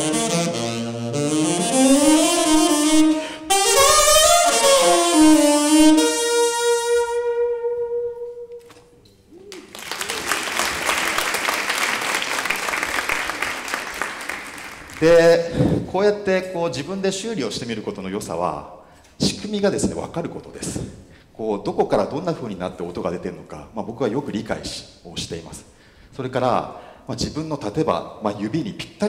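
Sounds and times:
tenor saxophone melody: 0.0s - 9.0s
audience applause: 9.5s - 15.1s.

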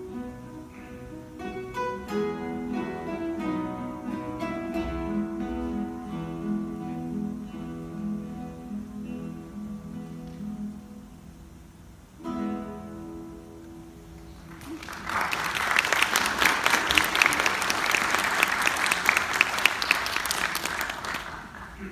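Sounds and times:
classical guitar ensemble chords: 0.0s - 21.9s
audience applause: 14.2s - 21.9s.

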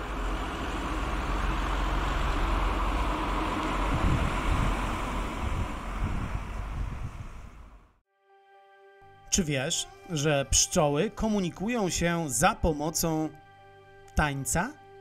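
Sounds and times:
wind rumbling on microphone: 0.4s - 8.0s.

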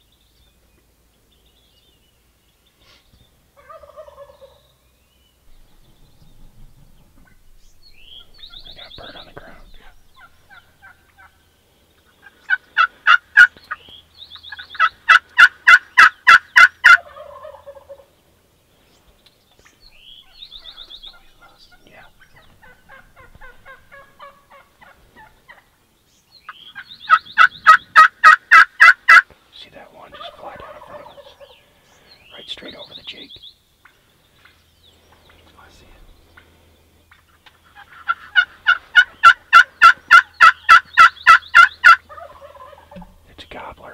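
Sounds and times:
wild turkeys calling: 2.8s - 43.9s.

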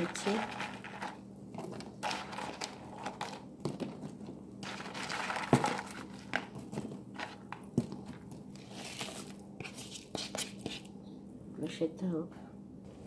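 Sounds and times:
faint steady hum: 0.0s - 13.0s
dry noodles crinkling and crunching: 4.6s - 7.5s.

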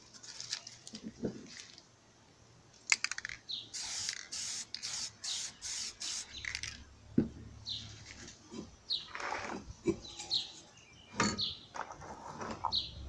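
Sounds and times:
spray paint can hissing: 3.7s - 6.8s.

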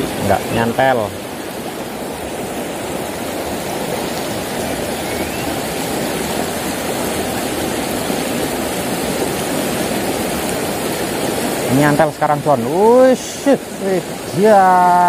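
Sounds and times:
stream flowing over stones: 0.0s - 15.0s.

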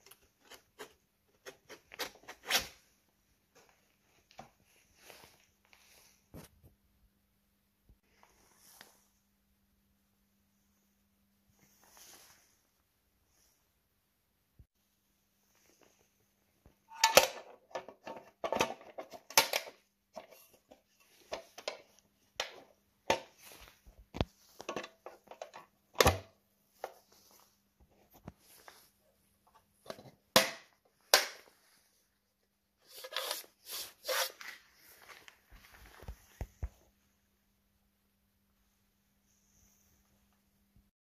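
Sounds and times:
metal lid clicking and knocking: 16.9s - 20.3s.

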